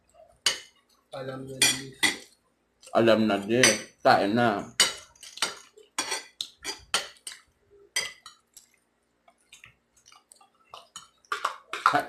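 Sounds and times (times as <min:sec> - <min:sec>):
cutlery clinking on plates: 0:00.4 - 0:00.8, 0:01.6 - 0:02.3, 0:04.8 - 0:07.4, 0:08.0 - 0:08.4, 0:10.7 - 0:12.0.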